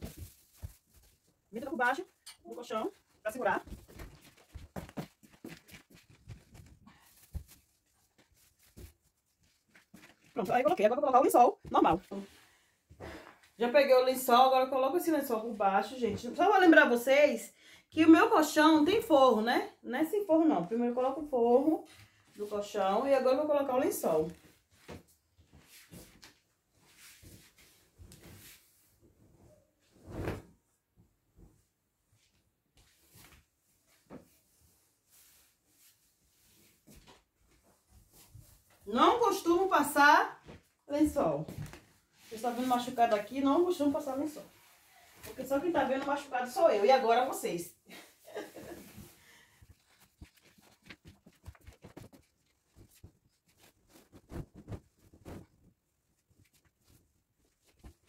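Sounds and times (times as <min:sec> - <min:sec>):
bedsheet rustling: 0:00.0 - 0:12.6, 0:24.3 - 0:47.2, 0:48.0 - 0:58.0
sheet flapping: 0:27.1 - 0:30.6, 0:48.4 - 0:58.0.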